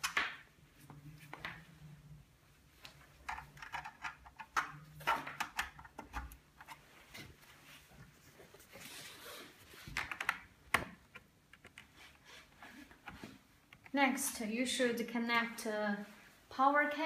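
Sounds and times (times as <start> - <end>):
cables clicking and rustling: 2.7 - 8.8, 9.5 - 14.0.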